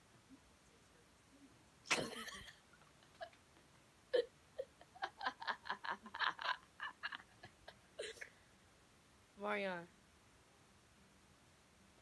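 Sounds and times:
person giggling: 4.1s - 8.4s.

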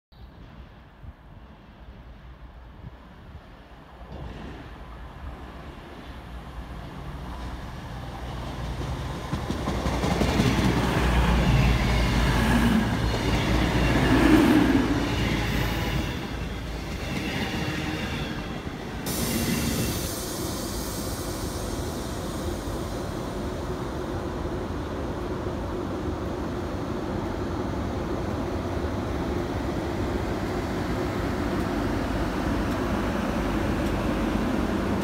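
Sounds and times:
diesel train passing: 0.2s - 35.0s.

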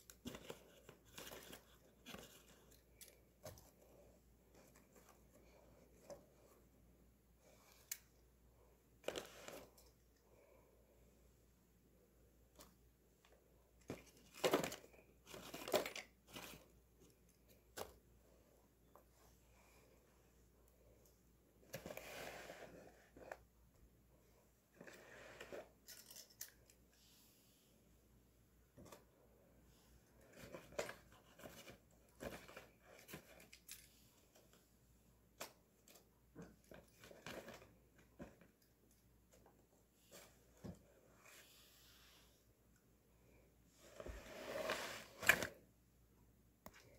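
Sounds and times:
paper and cardboard rustling: 0.1s - 3.9s, 13.9s - 16.8s.

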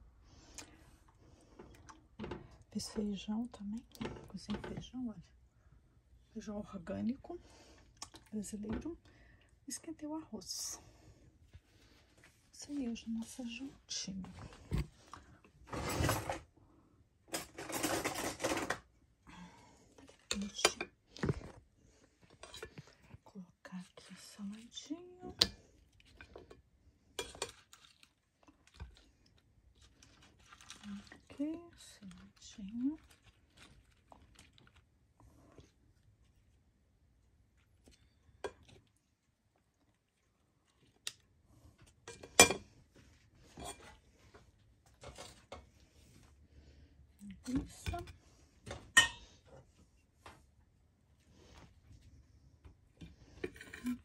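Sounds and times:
plates and cutlery clinking: 48.9s - 49.3s.

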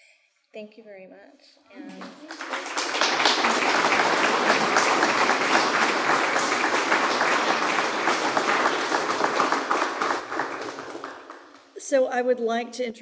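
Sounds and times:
audience applauding: 1.8s - 11.8s.

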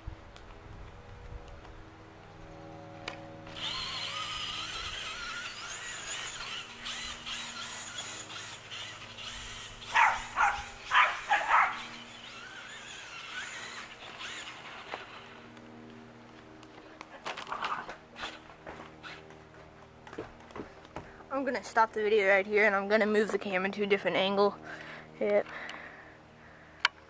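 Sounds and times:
toy car motor whining: 2.9s - 15.6s, 17.2s - 19.3s
dog barking: 9.9s - 11.9s.

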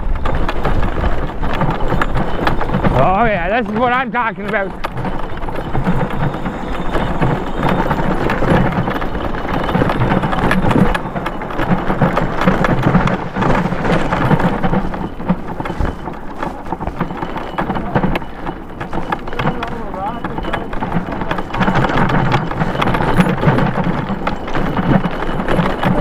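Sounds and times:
bike knocks and rattles: 0.0s - 26.0s
tyres crunching on gravel: 0.0s - 26.0s.

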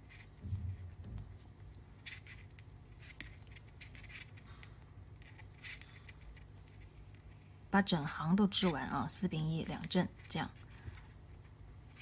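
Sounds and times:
soft low bump: 0.3s - 1.7s.

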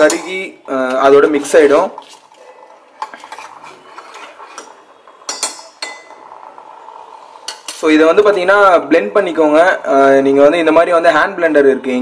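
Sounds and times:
metal spoon stirring in pot: 1.4s - 6.4s, 7.2s - 8.0s
spoon clinking against pot: 4.5s - 6.2s.

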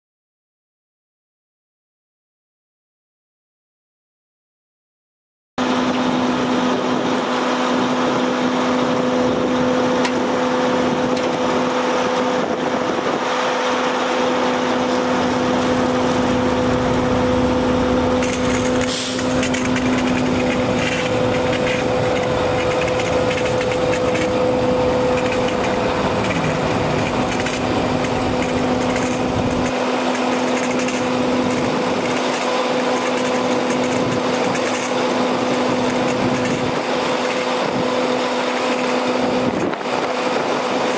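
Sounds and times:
pump humming: 5.6s - 40.9s
water hissing from hose nozzle: 18.2s - 20.7s.

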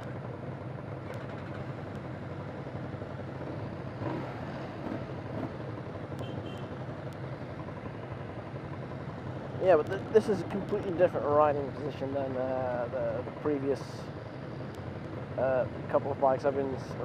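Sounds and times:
other motorcycles idling: 0.0s - 10.1s
motorcycle idling: 0.0s - 17.0s.

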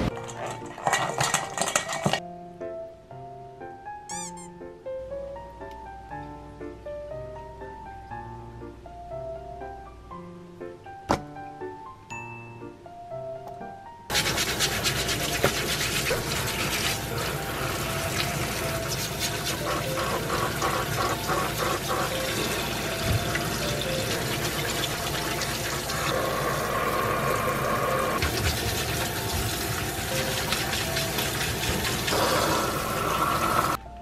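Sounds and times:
brush scrubbing shells: 14.1s - 23.0s
tap water running into sink: 14.1s - 33.8s.

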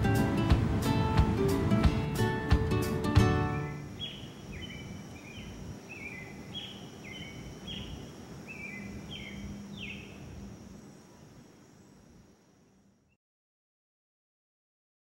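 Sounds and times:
faint high hiss: 0.0s - 13.2s
bird chirping: 3.4s - 12.1s.

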